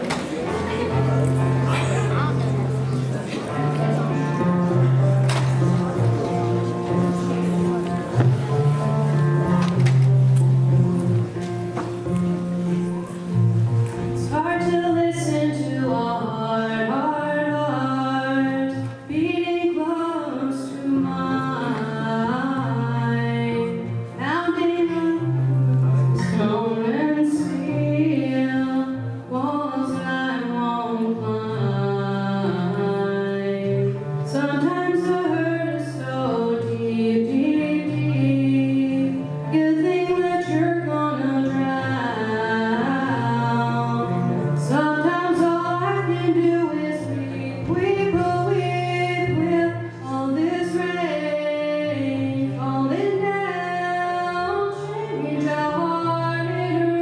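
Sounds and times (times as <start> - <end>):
young woman singing: 14.1 - 57.0.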